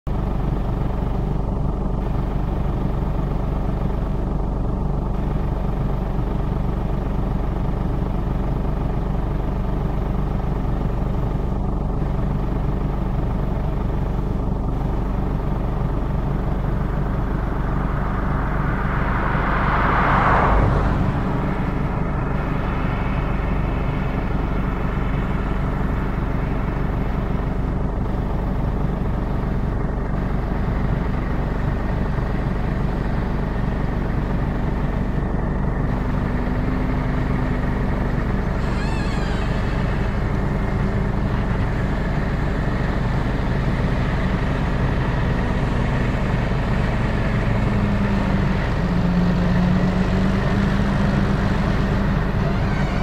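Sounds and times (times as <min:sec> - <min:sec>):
tractor diesel engine under load: 0:00.0 - 0:53.0
rushing swell: 0:16.5 - 0:26.8.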